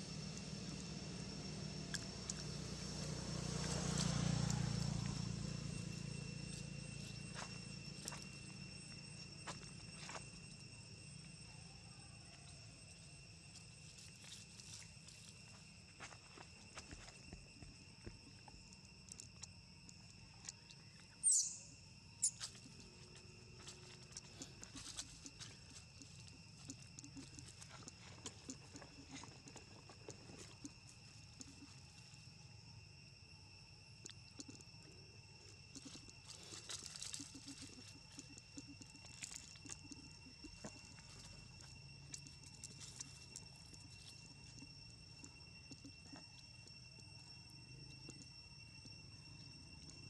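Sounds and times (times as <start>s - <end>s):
steady high-pitched whine: 0.0s - 50.0s
sharp high squeaks: 21.2s - 22.6s.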